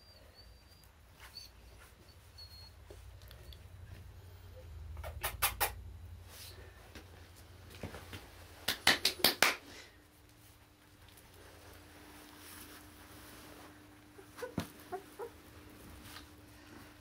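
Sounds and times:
quick sharp clicks: 0:05.0 - 0:05.8
puppies moving on floor: 0:10.3 - 0:17.0.

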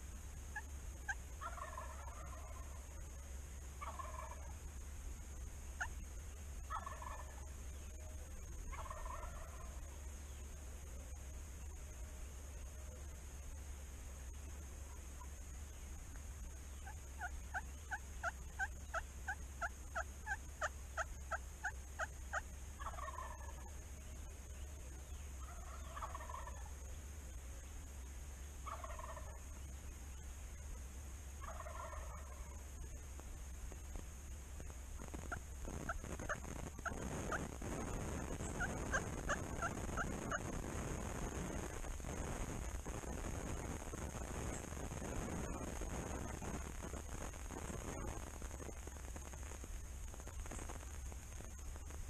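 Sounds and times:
turkey yelping: 0:00.5 - 0:02.9, 0:03.8 - 0:04.5, 0:05.8 - 0:06.0, 0:06.7 - 0:07.5, 0:08.7 - 0:09.8, 0:16.8 - 0:23.7, 0:25.4 - 0:26.7, 0:28.6 - 0:29.4, 0:31.4 - 0:32.6, 0:35.2 - 0:40.6
turkey gobbling: 0:00.5 - 0:04.6, 0:05.8 - 0:06.0, 0:06.6 - 0:10.0, 0:16.7 - 0:26.9, 0:28.6 - 0:30.2, 0:31.4 - 0:33.0, 0:35.0 - 0:41.8, 0:43.0 - 0:48.7.

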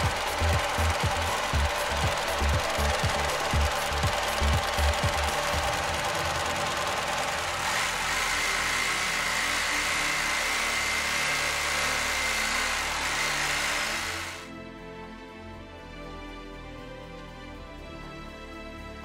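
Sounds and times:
steady high tone: 0:00.0 - 0:09.3
industrial sewing machine running: 0:00.0 - 0:14.5.

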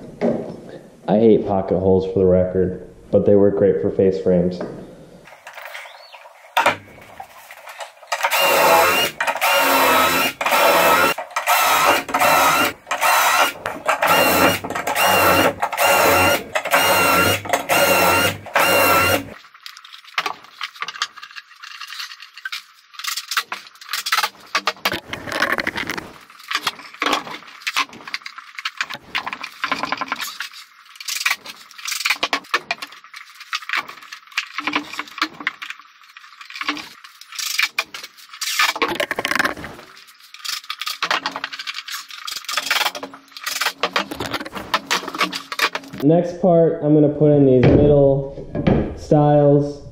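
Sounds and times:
cordless drill motor whining: 0:08.2 - 0:19.4.

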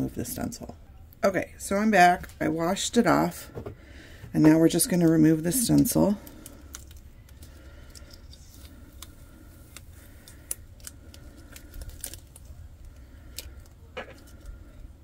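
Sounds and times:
vinyl crackling as peeled: 0:05.0 - 0:15.0.

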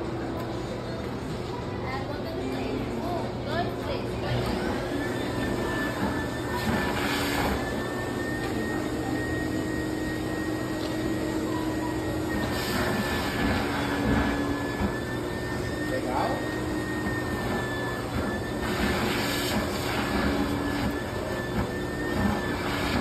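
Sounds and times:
high machine whine: 0:02.9 - 0:23.0
stuffing machine blowing air: 0:04.2 - 0:23.0.

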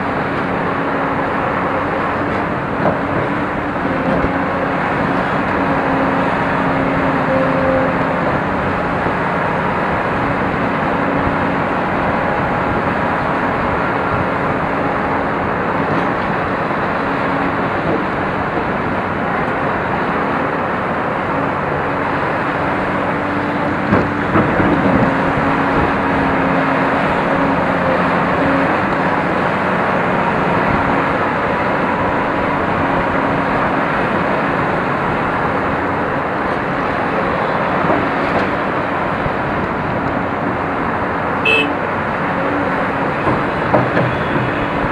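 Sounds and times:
excavator engine and hydraulics drone: 0:00.0 - 0:44.9.

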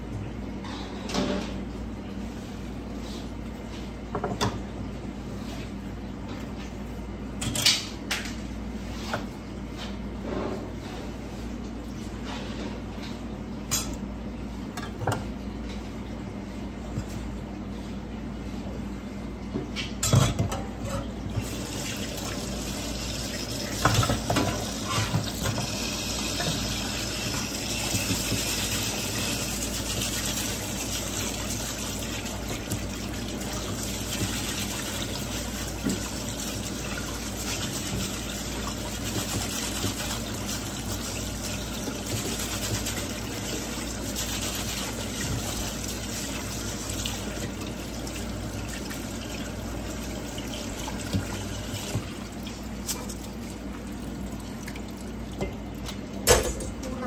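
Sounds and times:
kitchen tap running: 0:21.3 - 0:57.0.

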